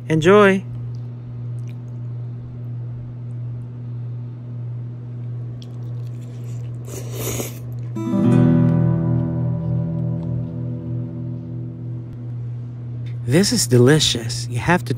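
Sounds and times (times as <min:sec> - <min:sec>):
steady low hum: 0:00.0 - 0:14.9
rustling squish: 0:05.5 - 0:08.0
wet squishing of noodles: 0:05.5 - 0:08.0.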